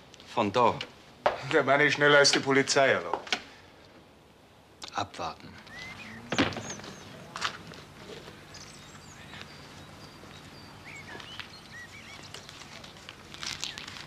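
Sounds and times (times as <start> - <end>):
birds chirping: 4.8 - 14.0
suitcase thumping on pavement: 6.3 - 7.8.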